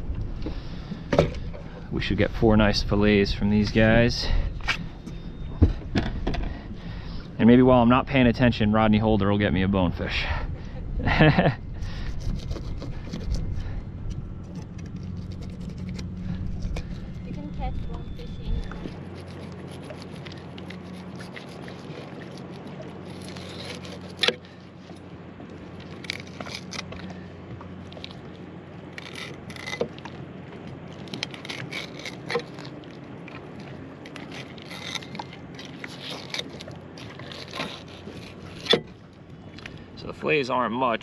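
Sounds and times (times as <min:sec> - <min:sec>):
knife scraping fish: 0:11.8 - 0:24.6, 0:25.8 - 0:27.1, 0:29.0 - 0:30.0, 0:31.0 - 0:32.9, 0:34.1 - 0:38.9.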